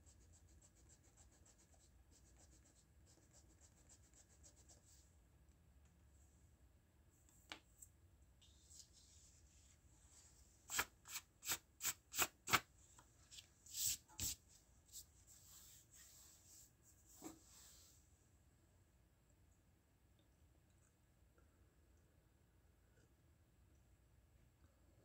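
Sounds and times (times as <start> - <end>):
hand brushing paper: 8.7 - 12.7, 13.3 - 17.9.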